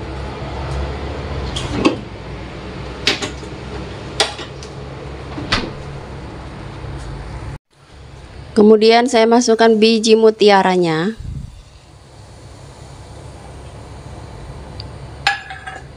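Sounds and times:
water boiling in a pot: 0:10.9 - 0:15.9.

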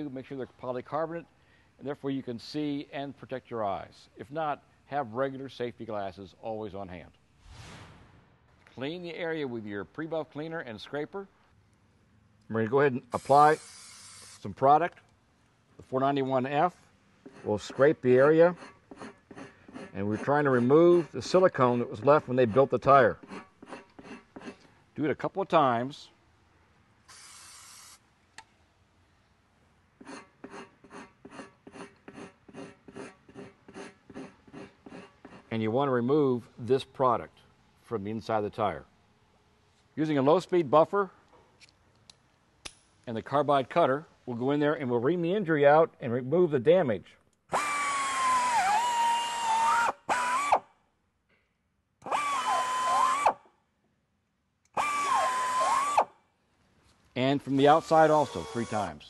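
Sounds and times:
hand scraper rasping on rubber: 0:17.2 - 0:21.4, 0:22.4 - 0:24.6, 0:30.0 - 0:35.5, 0:57.5 - 0:58.9
air buffer spinning cutter: 0:27.1 - 0:28.0, 0:57.5 - 0:58.9.

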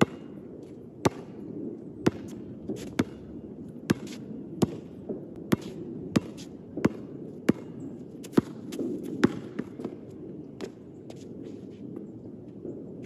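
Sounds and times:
basketball bouncing on hard court: 0:00.0 - 0:00.3, 0:01.0 - 0:01.4, 0:02.0 - 0:03.2, 0:03.9 - 0:04.9, 0:05.5 - 0:10.0.

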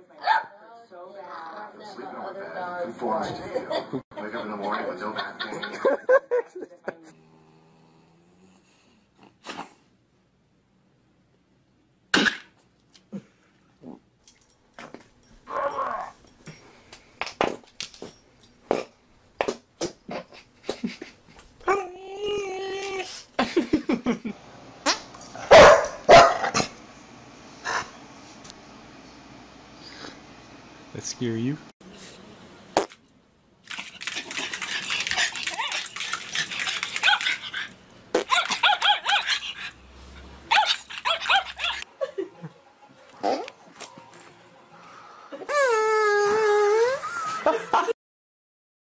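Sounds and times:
dog whining: 0:15.5 - 0:16.2, 0:34.4 - 0:39.8, 0:40.5 - 0:41.8, 0:45.4 - 0:47.3
small dog yipping: 0:38.2 - 0:39.5, 0:40.5 - 0:41.8.

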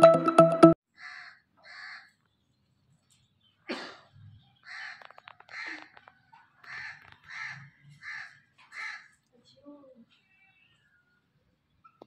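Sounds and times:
crows cawing: 0:01.0 - 0:02.2, 0:04.6 - 0:09.2.

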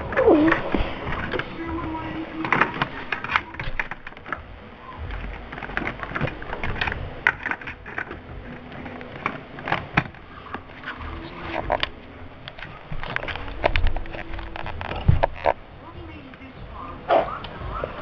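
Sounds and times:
plastic toy clicks and knocks: 0:02.4 - 0:10.6.

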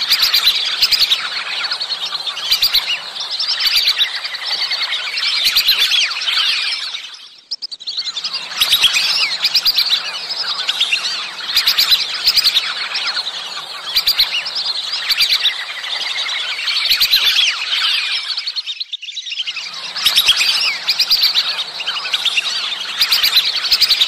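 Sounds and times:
ducks whistling: 0:00.0 - 0:24.0.

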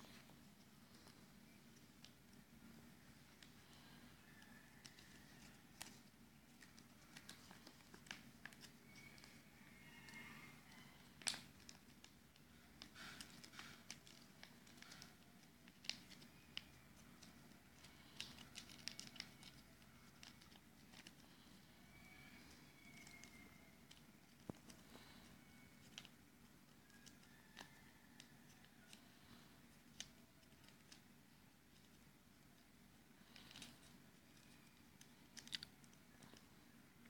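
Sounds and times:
paper crinkling while folded: 0:00.0 - 0:37.0.

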